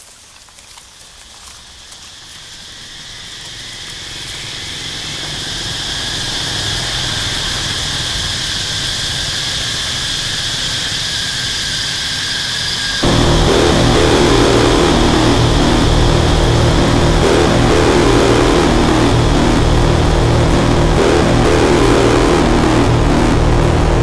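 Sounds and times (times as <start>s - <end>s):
hissing noise drone: 2.1s - 24.0s
steady high whine: 2.5s - 24.0s
low rumble: 13.0s - 24.0s.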